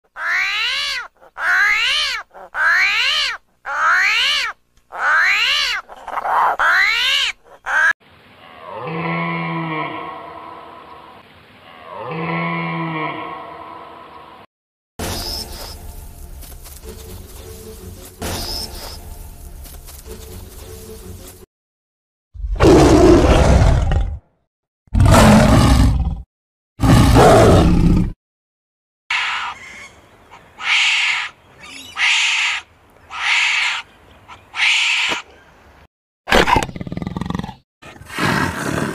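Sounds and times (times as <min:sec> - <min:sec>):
big cat roaring: 0:22.4 - 0:24.2, 0:24.9 - 0:26.2, 0:26.8 - 0:28.2.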